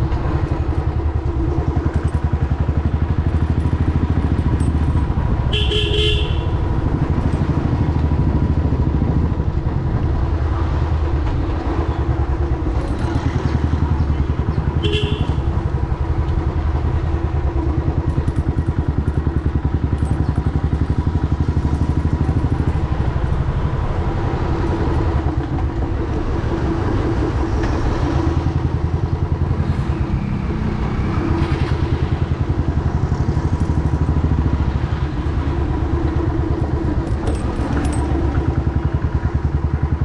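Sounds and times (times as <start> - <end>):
motorcycle engine thumping: 0.0 - 10.0, 12.8 - 23.6.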